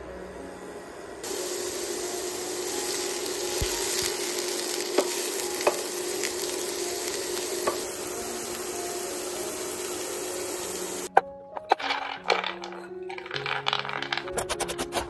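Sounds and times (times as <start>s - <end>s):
vegetables sizzling in oil: 1.2s - 11.1s.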